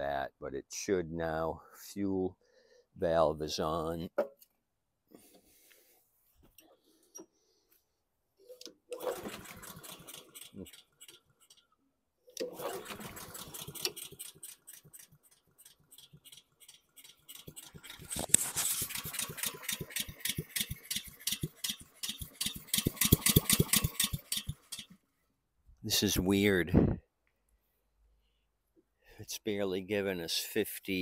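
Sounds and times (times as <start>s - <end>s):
engine cranking and sputtering: 8.9s - 11.7s, 12.3s - 25.0s
lawn mower engine running roughly: 9.0s - 11.6s, 12.4s - 25.0s.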